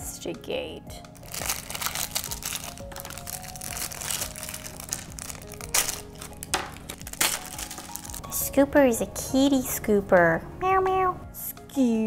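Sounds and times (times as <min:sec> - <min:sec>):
background music: 0:00.0 - 0:12.0
plastic wrapper crinkling: 0:01.1 - 0:08.4.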